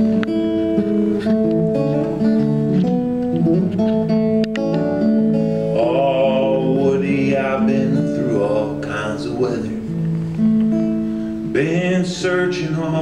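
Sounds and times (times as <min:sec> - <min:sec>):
acoustic guitar picking and strumming: 0:00.0 - 0:13.0
person singing: 0:05.6 - 0:09.9, 0:11.3 - 0:13.0.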